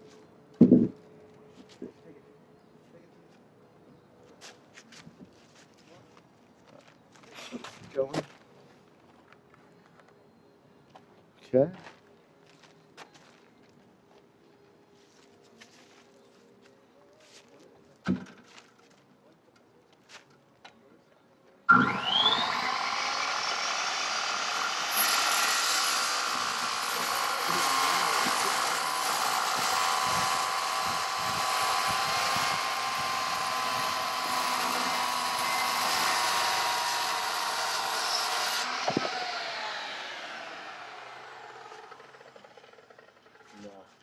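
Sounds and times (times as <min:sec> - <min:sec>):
circular saw cutting wood: 0:21.7 - 0:43.7.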